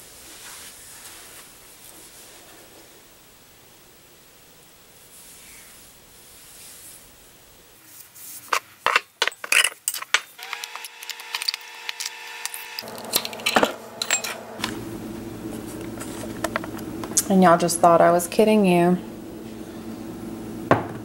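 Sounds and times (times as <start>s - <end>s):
glass clinking on stone countertop: 13.1s - 14.4s.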